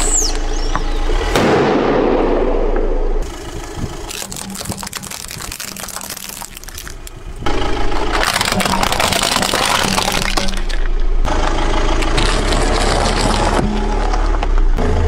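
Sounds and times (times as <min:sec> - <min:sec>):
low engine hum: 0:00.0 - 0:15.0
plastic toys cracking under tyre: 0:04.1 - 0:07.2, 0:07.9 - 0:10.9.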